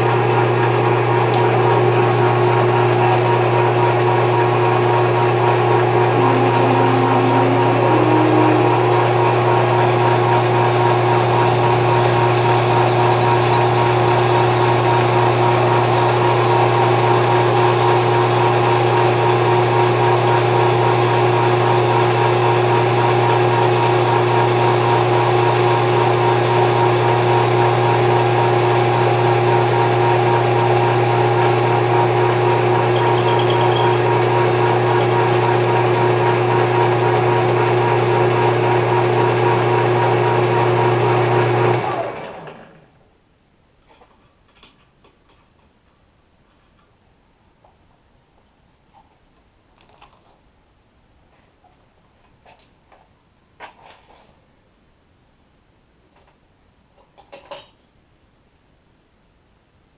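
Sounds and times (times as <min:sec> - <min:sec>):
metal lathe running: 0:00.1 - 0:42.6.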